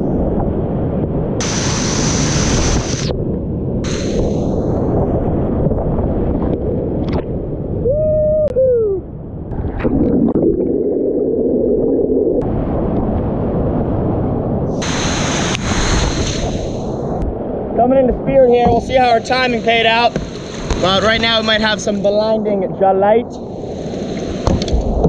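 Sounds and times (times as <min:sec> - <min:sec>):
splashing spray: 0:01.4 - 0:03.1, 0:03.8 - 0:04.6, 0:14.8 - 0:17.0.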